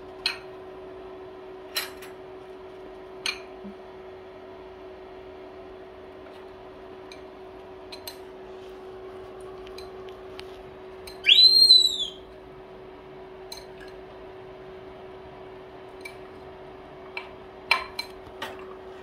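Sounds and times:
monkey high-pitched call: 11.2s - 12.2s.

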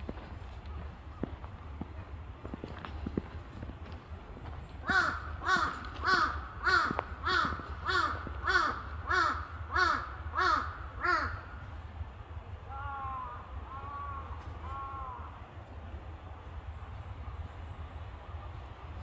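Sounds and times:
crow cawing: 4.8s - 11.6s, 12.7s - 15.4s.

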